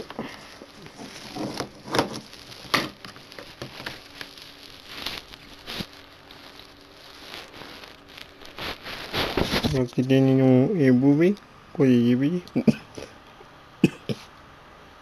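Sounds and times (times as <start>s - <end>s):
rustling: 0.0s - 10.5s.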